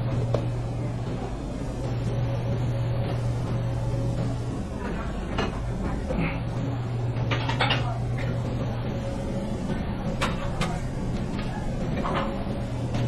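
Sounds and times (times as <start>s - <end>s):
steady low hum: 0.0s - 13.0s
kitchen knocks and clatters: 7.1s - 8.4s.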